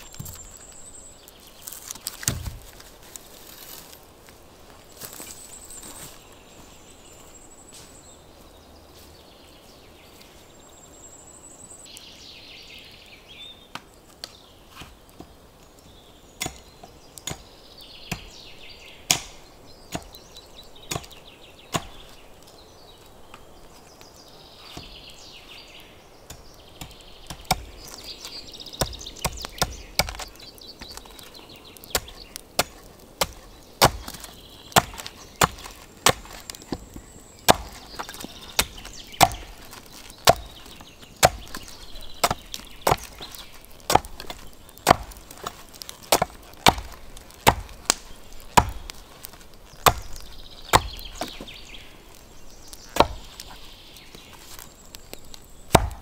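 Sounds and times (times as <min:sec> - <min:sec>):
wood being chopped: 0:00.0 - 0:00.6, 0:01.6 - 0:02.9, 0:16.4 - 0:22.2, 0:26.2 - 0:52.2, 0:52.8 - 0:56.0
faint birds chirping: 0:00.0 - 0:56.0.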